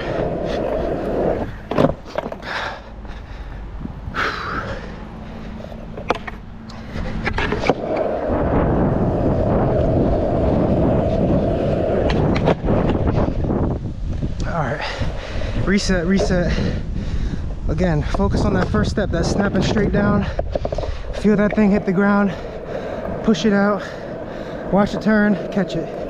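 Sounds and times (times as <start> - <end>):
skateboard clacking on ground: 0.0 - 2.6, 5.7 - 8.5, 9.4 - 13.2, 15.8 - 16.6, 18.0 - 26.0.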